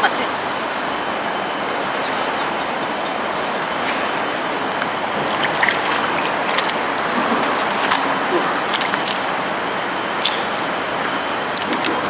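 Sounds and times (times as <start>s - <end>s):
river water running over stones: 2.5s - 12.0s.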